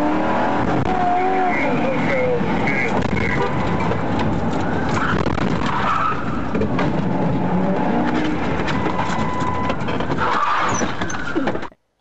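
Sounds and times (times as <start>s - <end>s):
tyres squealing: 7.9s - 11.7s.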